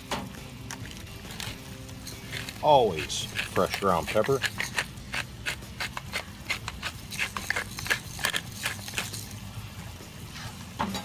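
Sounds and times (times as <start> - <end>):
pepper grinder crunching clicks: 2.2 - 9.2.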